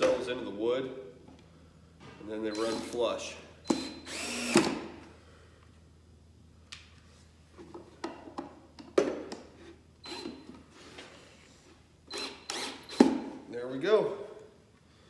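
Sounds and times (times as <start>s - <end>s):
cordless drill driving screws: 2.5s - 3.0s, 3.7s - 4.9s, 10.0s - 10.4s, 12.1s - 13.2s.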